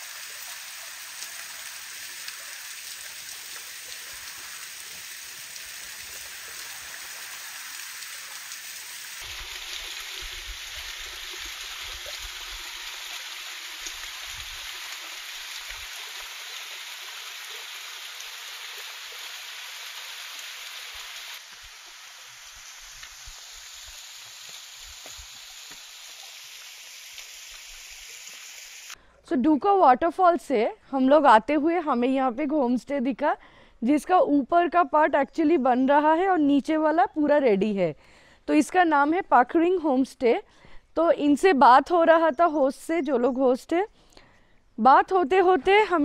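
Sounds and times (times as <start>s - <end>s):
waterfall splashing on rock: 0.0s - 29.0s.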